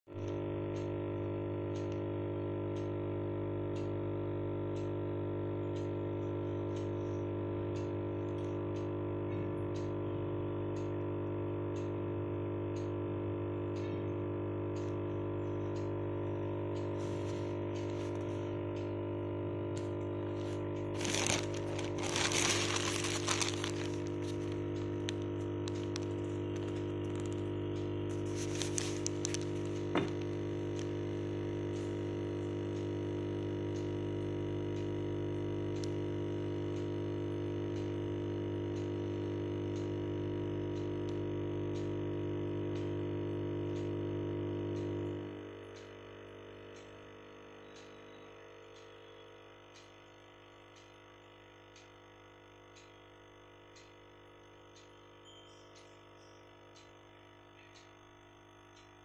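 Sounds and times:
aquarium pump hum: 0.1 - 59.0
faint ticks: 0.2 - 59.0
rustling noise: 21.0 - 24.5, 28.2 - 29.8.

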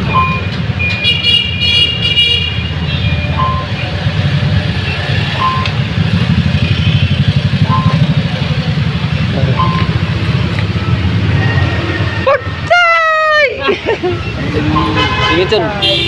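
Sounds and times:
short beeps: 0.0 - 1.1, 3.0 - 4.0, 4.8 - 5.9, 6.6 - 8.3, 9.4 - 11.2.

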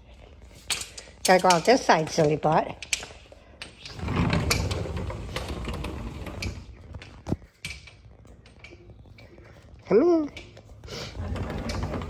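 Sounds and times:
sliding glass door rolling open: 3.9 - 6.9, 11.0 - 12.0.

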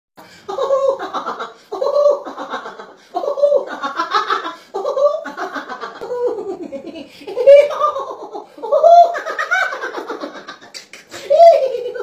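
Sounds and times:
woman laughing: 0.5 - 12.0.

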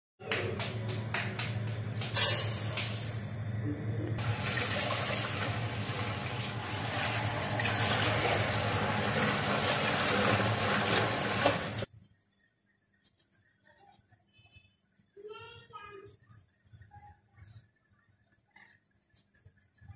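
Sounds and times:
water pouring into saucepan: 4.2 - 11.9.

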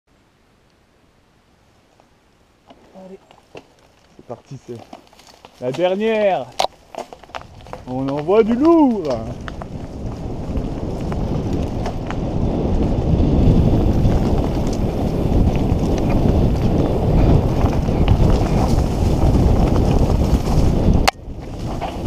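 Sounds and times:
bike rattles and knocks: 2.7 - 22.0
wind rumbling on microphone: 3.9 - 22.0.

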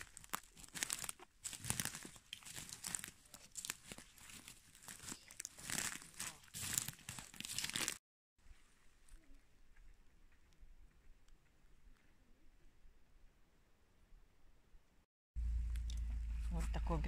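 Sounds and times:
footsteps crunching on twigs: 0.0 - 8.0.

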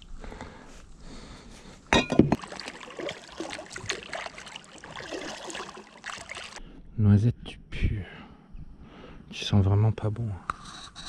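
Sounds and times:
water splashing around kayak: 2.2 - 6.6.

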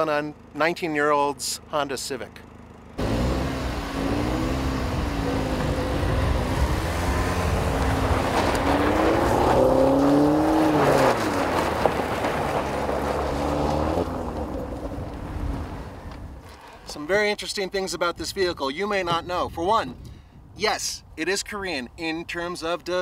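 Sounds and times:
tyres on gravel: 0.0 - 17.6
car engine revving: 2.9 - 16.5.

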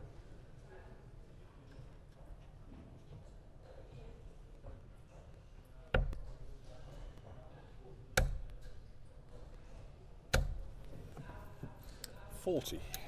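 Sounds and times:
darts thudding into dartboard: 10.3 - 10.7.

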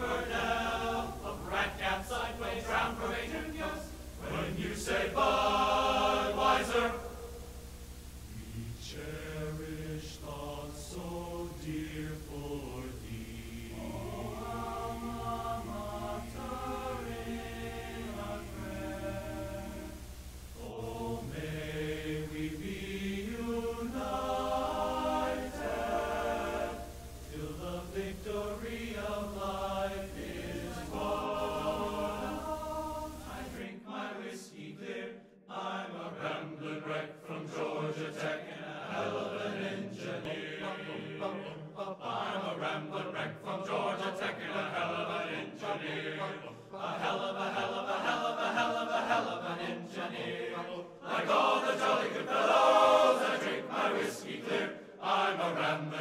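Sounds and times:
choir singing: 0.0 - 7.5, 8.2 - 56.0
steady low hum: 0.0 - 33.7.

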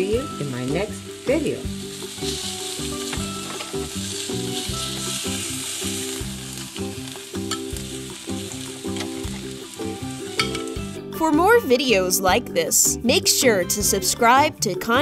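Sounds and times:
vegetables sizzling on grill: 0.0 - 11.2.

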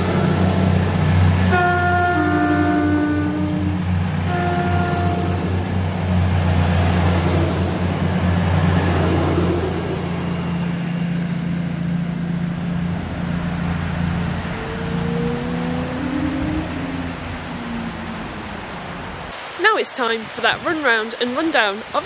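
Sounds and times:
train horn: 0.0 - 5.8
train diesel engines humming: 0.0 - 22.0.

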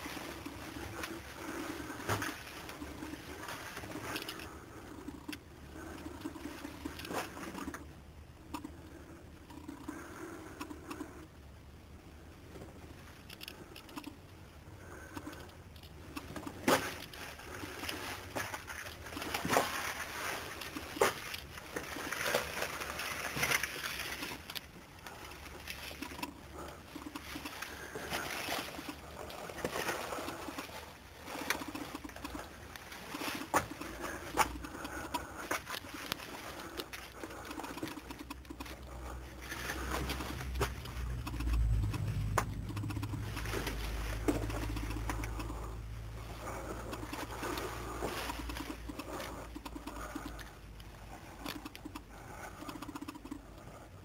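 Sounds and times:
footsteps and handling noise: 15.2 - 41.2.

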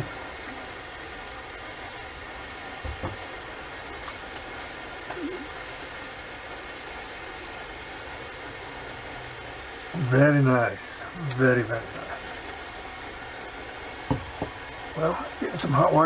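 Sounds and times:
steady hiss: 0.0 - 16.0
soft thump: 2.8 - 3.2, 14.1 - 14.6.

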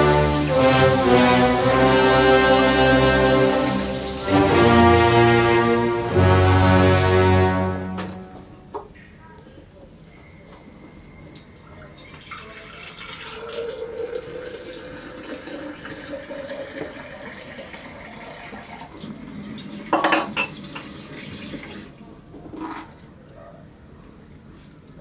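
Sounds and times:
tap running water into sink: 0.0 - 4.9, 14.0 - 21.9.

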